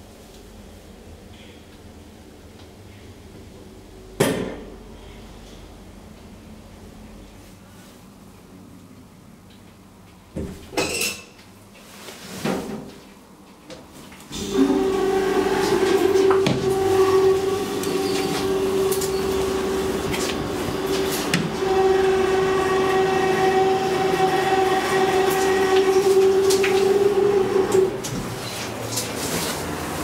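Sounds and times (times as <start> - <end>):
elevator pump humming: 14.3 - 30.0.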